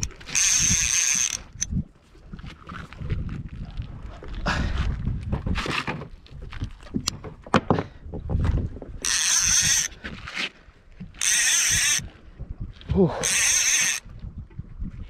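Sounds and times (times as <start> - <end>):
fishing reel drag screaming: 0.0 - 1.7, 9.0 - 9.9, 11.2 - 12.0, 13.2 - 14.0.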